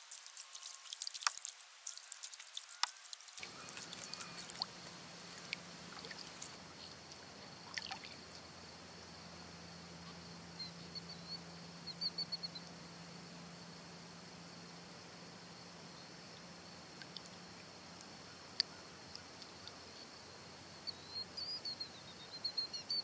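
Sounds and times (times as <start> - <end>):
water dripping and trickling: 0.0 - 8.4
faint steady hum: 0.0 - 23.0.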